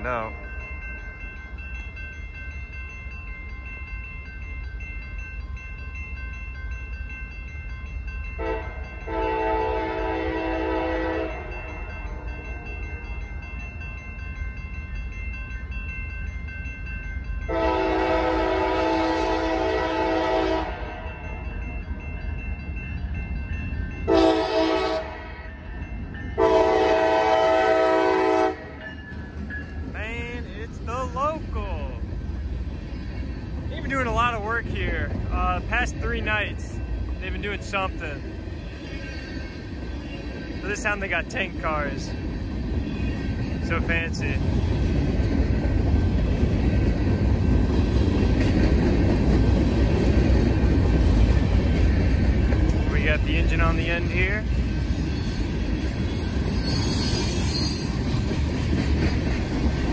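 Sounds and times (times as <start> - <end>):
train rumbling: 0.0 - 59.9
locomotive air horn blasts: 8.4 - 11.7, 17.5 - 21.0, 24.1 - 25.3, 26.4 - 28.8.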